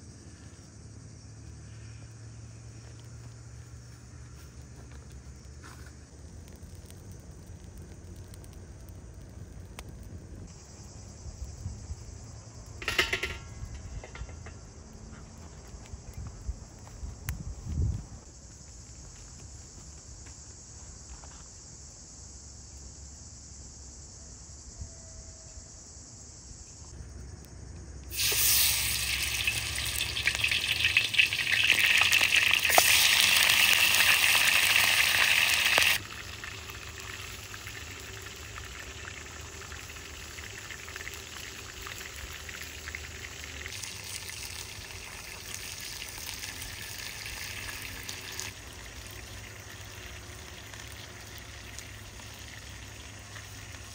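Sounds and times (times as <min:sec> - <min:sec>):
food sizzling in hot oil: 0:28.1 - 0:53.9.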